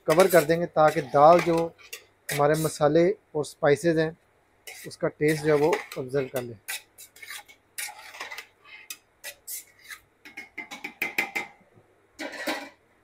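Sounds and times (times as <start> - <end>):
metal spatula scraping a pot: 0.0 - 2.8, 4.6 - 11.4, 12.2 - 12.8.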